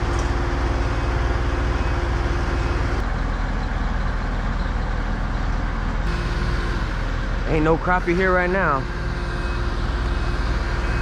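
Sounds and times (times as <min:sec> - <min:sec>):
heavy machinery engine rumbling: 0:00.0 - 0:11.0
higher steady hum: 0:05.1 - 0:11.0.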